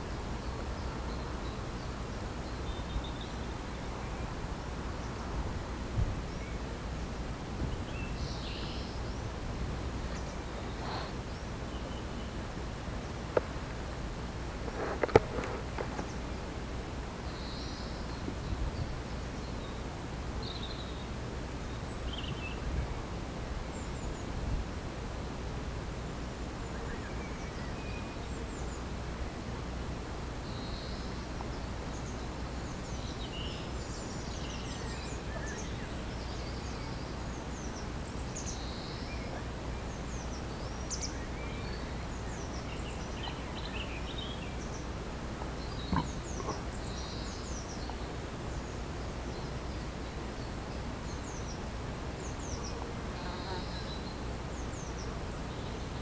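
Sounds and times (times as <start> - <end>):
small birds chirping: 0.0 - 5.4, 6.0 - 24.4, 30.4 - 56.0
bees buzzing: 44.8 - 46.9.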